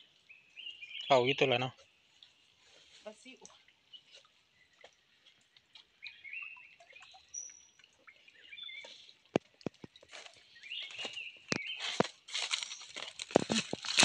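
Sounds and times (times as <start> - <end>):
small birds chirping: 0.0 - 12.0
boots snapping dry branches: 10.1 - 14.0.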